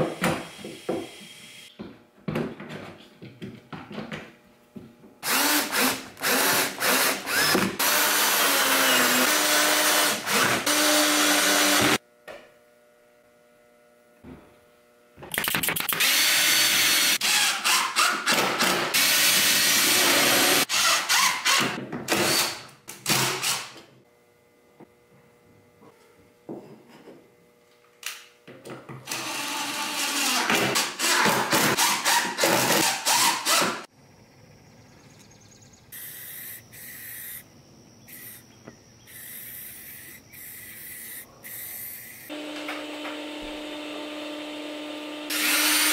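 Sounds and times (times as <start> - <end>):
cordless drill driving screws: 5.2 - 12.0, 45.3 - 45.9.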